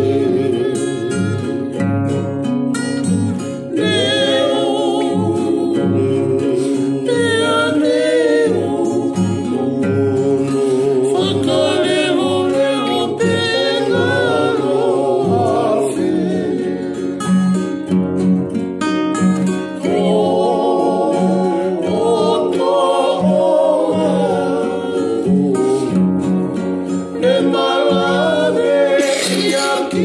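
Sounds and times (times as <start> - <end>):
man singing: 0.0 - 1.8, 3.8 - 16.1, 27.1 - 30.0
acoustic guitar strumming: 0.0 - 30.0.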